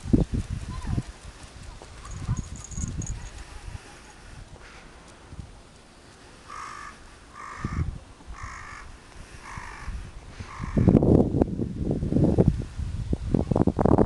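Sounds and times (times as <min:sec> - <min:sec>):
crow cawing: 0:06.5 - 0:11.0.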